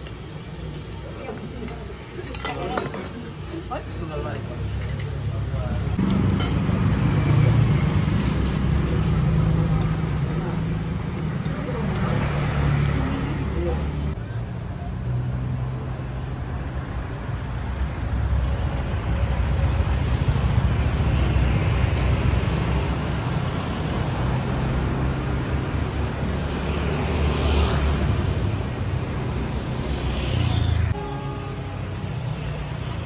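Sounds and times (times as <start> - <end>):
cars passing on road: 4.0 - 33.0.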